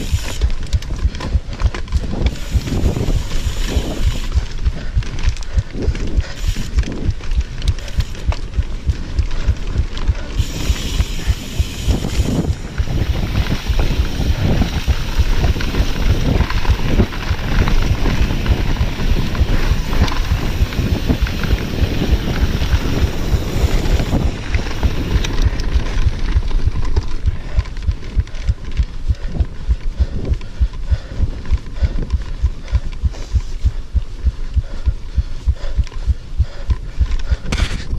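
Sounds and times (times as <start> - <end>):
bike rattling and knocking: 0.0 - 37.9
tyres rumbling on dirt trail: 0.0 - 37.9
wind buffeting microphone: 0.0 - 37.9
high hiss: 10.4 - 16.0.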